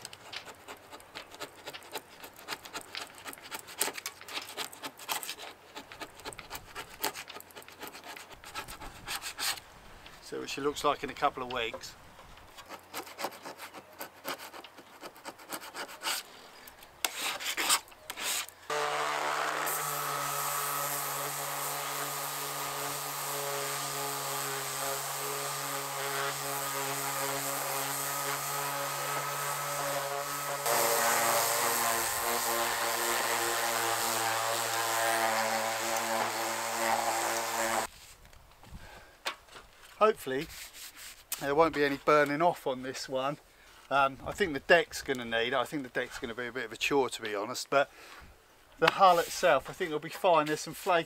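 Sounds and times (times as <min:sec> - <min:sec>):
scraping and rubbing: 0:00.0 - 0:09.6, 0:12.4 - 0:38.2, 0:39.5 - 0:42.1, 0:48.8 - 0:51.0
orbital sander on hull: 0:18.2 - 0:37.9.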